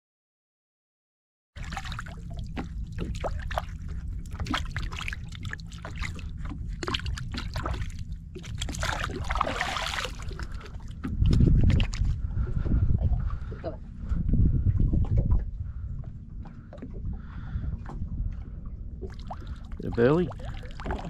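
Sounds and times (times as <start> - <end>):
steady low rumble: 1.6 - 21.0
hands splashing into water: 8.5 - 10.7.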